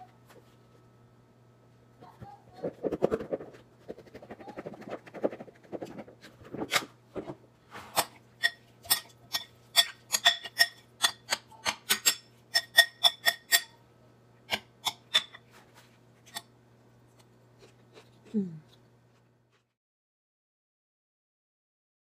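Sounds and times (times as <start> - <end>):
spoon clinking glass bowl: 11.9 - 13.7.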